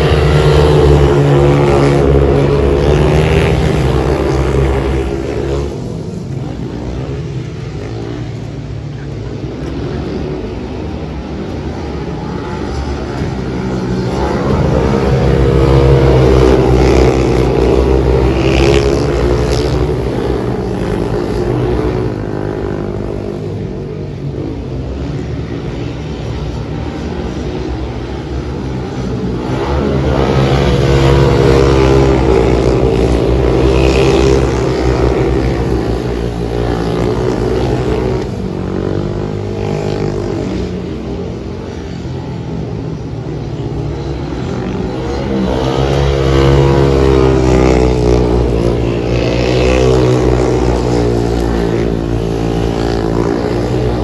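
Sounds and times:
motorcycles racing: 0.0s - 54.0s.

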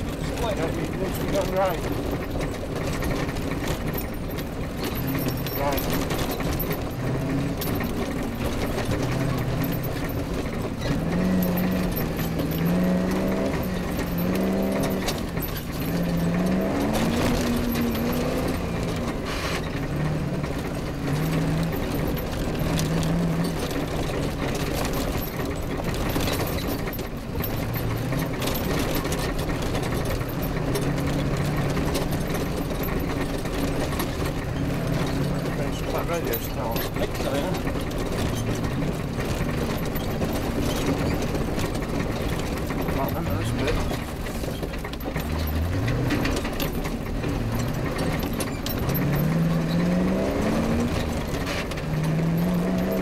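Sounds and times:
constant rush of noise: 0.0s - 53.0s
rally car engine accelerating: 0.0s - 53.0s.

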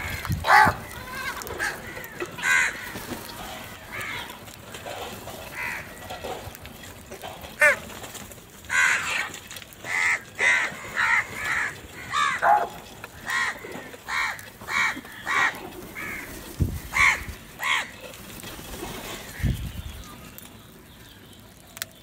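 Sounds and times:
crows cawing: 0.0s - 18.2s, 19.0s - 19.6s.

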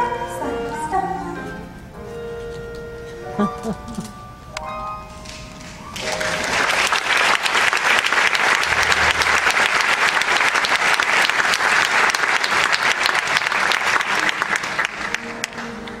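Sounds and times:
audience clapping: 5.3s - 16.0s.

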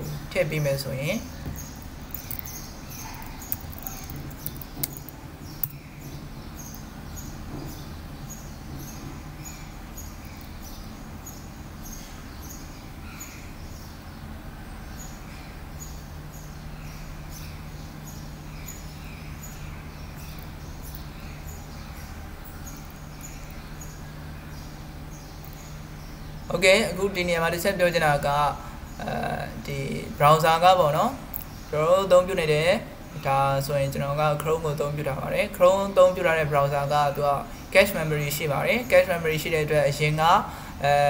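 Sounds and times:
low room hum: 0.0s - 41.0s.

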